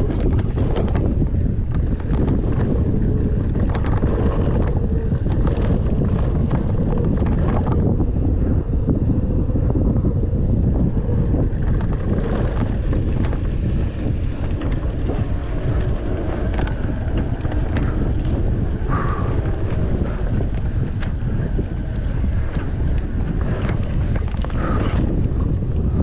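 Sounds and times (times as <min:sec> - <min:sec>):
bike rattles and knocks: 0:00.0 - 0:26.0
tyres rumbling on dirt trail: 0:00.0 - 0:26.0
wind buffeting microphone: 0:00.0 - 0:26.0.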